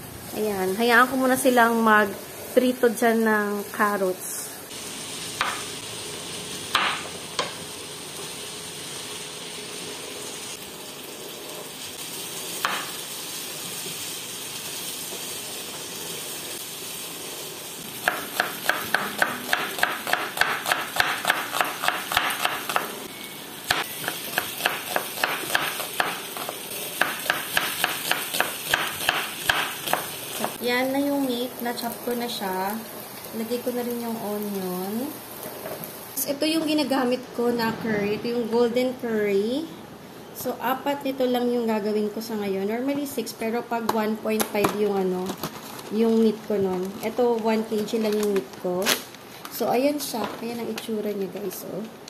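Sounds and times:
vegetables sizzling in a pot: 0.0 - 37.1
knife chopping on wooden board: 5.4 - 5.6, 6.7 - 7.5, 18.0 - 22.9, 23.7 - 26.2, 27.0 - 30.6.

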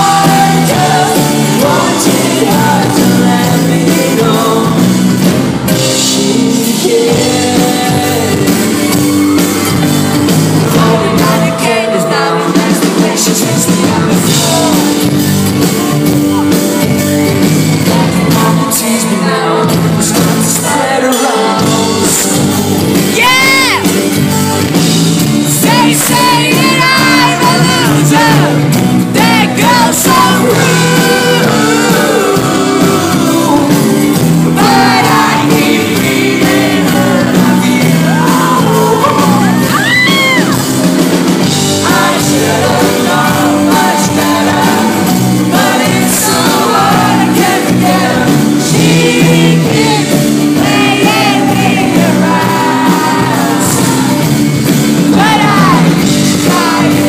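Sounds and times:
male lead vocal: 0.0 - 24.2, 25.1 - 57.0
acoustic guitar: 0.0 - 57.0
audience shouting and singing: 0.0 - 57.0
drums: 0.0 - 57.0.

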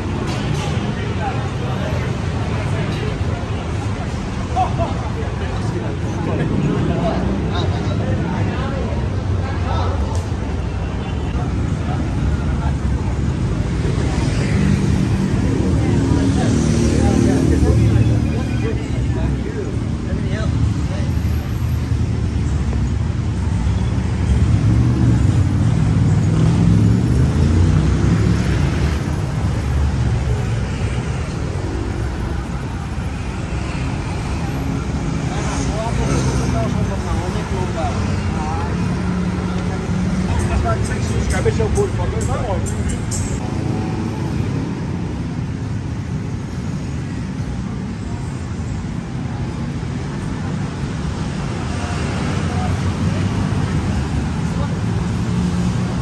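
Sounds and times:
road traffic rumble: 0.0 - 56.0.

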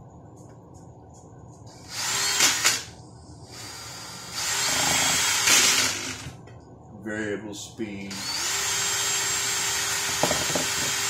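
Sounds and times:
drill motor whining: 1.8 - 2.9, 3.5 - 6.4, 8.1 - 11.0.

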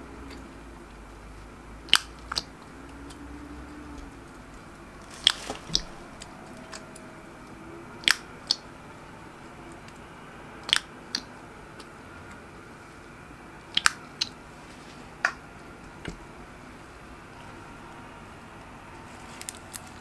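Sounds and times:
low steady hiss: 0.0 - 20.0
slime popping and clicking: 1.9 - 2.5, 5.1 - 6.0, 8.0 - 8.6, 10.6 - 11.3, 13.7 - 14.4.

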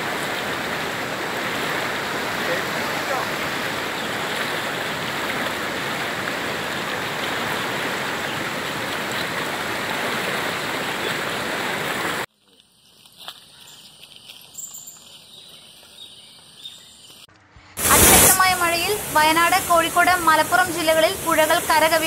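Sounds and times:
floodwater rushing: 0.0 - 12.3, 17.8 - 22.0.

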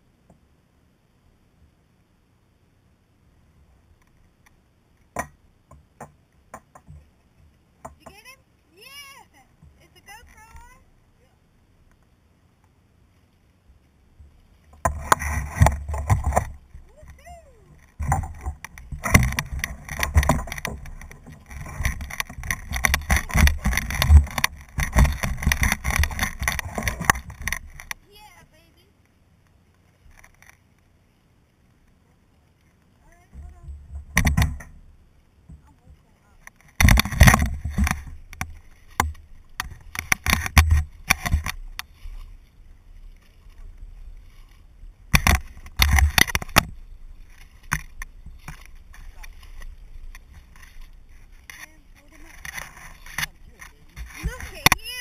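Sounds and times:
grass rustling and crackling: 3.6 - 55.0
handling bumps: 14.2 - 28.0, 45.1 - 55.0.

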